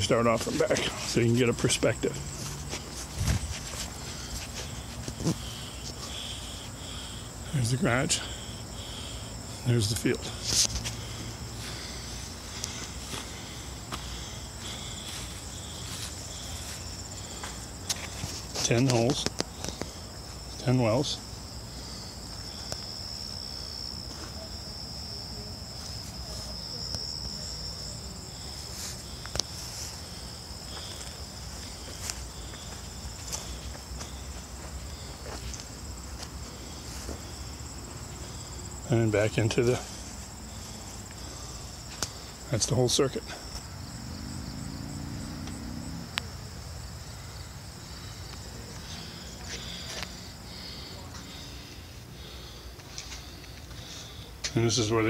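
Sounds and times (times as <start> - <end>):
insects trilling: 0.0 - 55.0
footstep scuffs: 0.3 - 6.1, 10.4 - 20.4, 30.7 - 37.4, 48.4 - 50.2.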